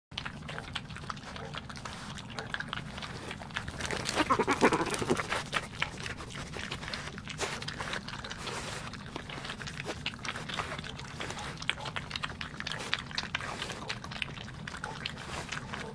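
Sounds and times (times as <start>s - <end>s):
badgers crunching peanuts: 0.1s - 15.9s
quick chewing clicks: 0.1s - 15.9s
badger growling: 3.3s - 5.6s.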